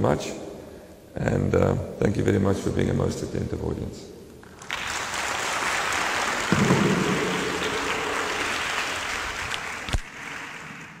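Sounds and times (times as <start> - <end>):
audience applauding: 4.5 - 11.0
sharp knock: 6.5 - 8.0.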